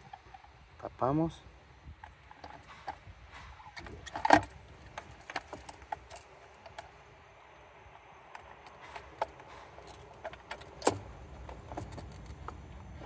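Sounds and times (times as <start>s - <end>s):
plastic parts clicking and clinking: 2.0s - 7.0s.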